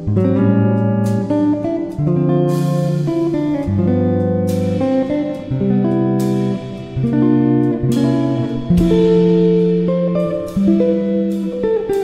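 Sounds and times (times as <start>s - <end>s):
guitar background music: 0.0s - 12.0s
sharp strikes: 6.2s - 10.8s.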